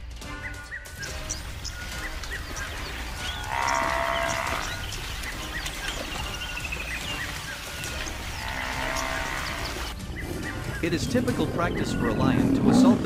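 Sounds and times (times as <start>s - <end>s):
bird trill: 0.3s - 12.2s
bird chirps: 0.3s - 12.4s
buffalo bellowing: 2.4s - 7.0s, 7.8s - 9.9s.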